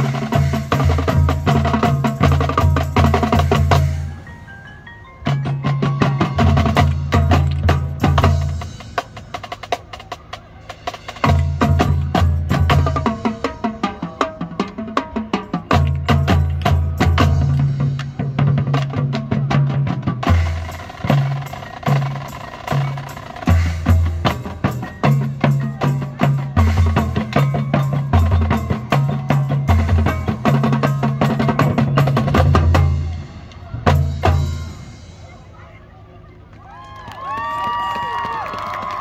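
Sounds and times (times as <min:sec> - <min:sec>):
snare and tenor drum strokes: 0:00.0 - 0:04.2, 0:05.3 - 0:36.0
deep low drum notes: 0:05.3 - 0:35.6.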